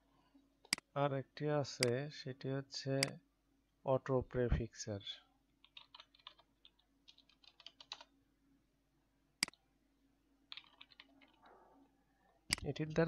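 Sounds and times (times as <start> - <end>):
computer keyboard typing: 5.6 - 8.1, 10.5 - 11.5.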